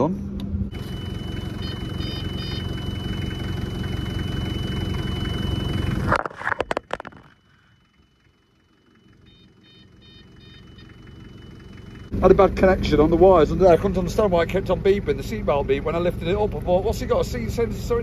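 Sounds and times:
diesel engine idling: 0:00.0 - 0:18.0
warning beeping pips: 0:00.7 - 0:06.2, 0:06.8 - 0:12.2.

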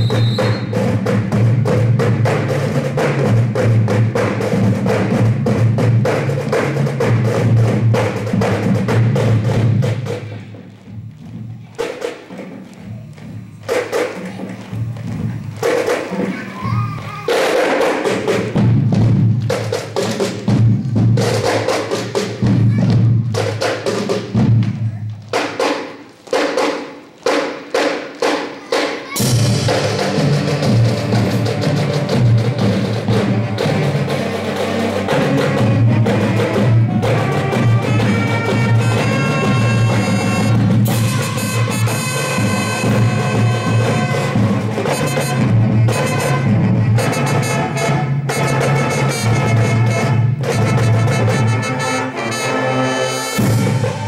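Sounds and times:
drum strikes: 0:00.0 - 0:52.5, 0:53.2 - 0:54.0
marching band playing: 0:00.0 - 0:54.0.

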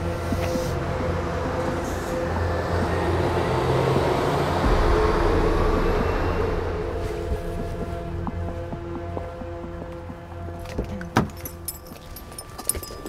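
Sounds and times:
bus driving past: 0:00.0 - 0:10.4.

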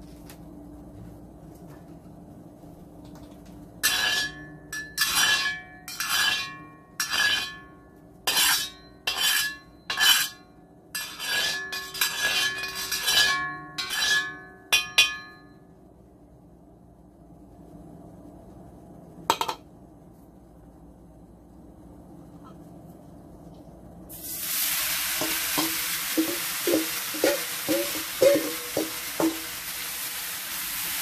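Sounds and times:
wok spatula scraping metal wok: 0:03.8 - 0:07.7, 0:08.3 - 0:10.4, 0:11.0 - 0:15.1, 0:24.2 - 0:30.2.

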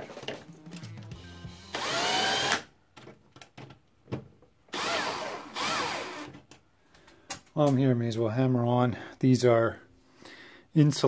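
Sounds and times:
cordless drill motor whine: 0:01.7 - 0:02.6, 0:04.7 - 0:06.3.

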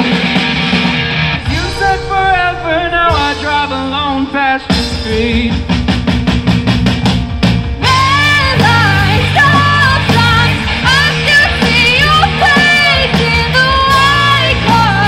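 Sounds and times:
rock band playing live: 0:00.0 - 0:15.0
steady drumbeat: 0:00.0 - 0:15.0
woman singing: 0:07.8 - 0:15.0.

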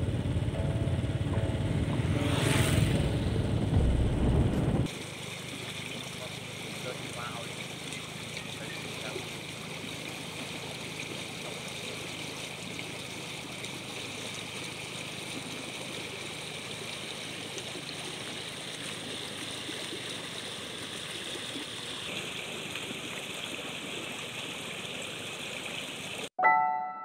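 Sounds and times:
stream water rushing: 0:02.1 - 0:26.3.

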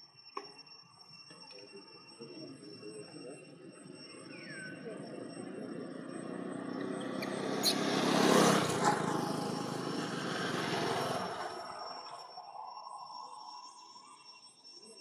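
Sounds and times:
vehicle passing by: 0:05.3 - 0:12.4.

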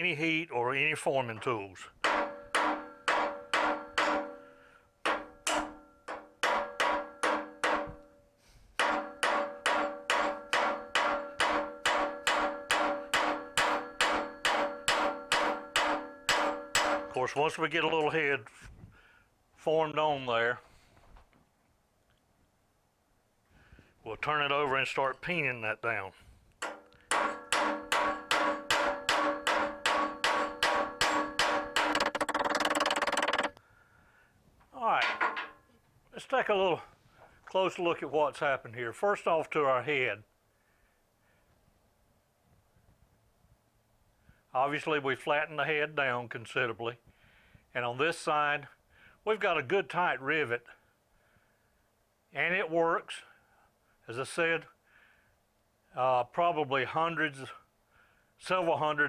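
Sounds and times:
hammer striking metal rivet: 0:02.0 - 0:08.2, 0:08.8 - 0:17.2, 0:26.6 - 0:33.6, 0:35.0 - 0:35.6.

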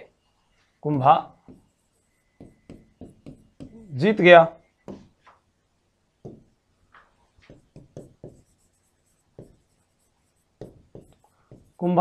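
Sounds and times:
stylus tapping on touchscreen: 0:00.9 - 0:03.9, 0:04.8 - 0:05.4, 0:06.2 - 0:08.7, 0:09.3 - 0:09.7, 0:10.6 - 0:11.8.

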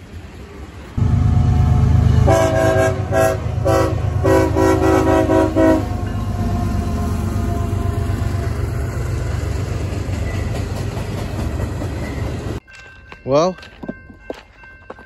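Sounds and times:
diesel locomotive engine rumbling: 0:00.0 - 0:15.0
train air horn chord: 0:01.0 - 0:08.4.

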